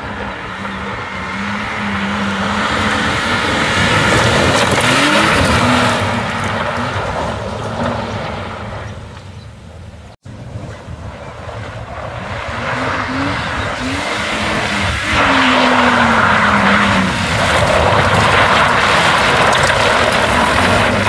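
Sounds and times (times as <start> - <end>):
car engine revving past: 0.6 - 8.7
tyres spraying gravel: 11.8 - 21.0.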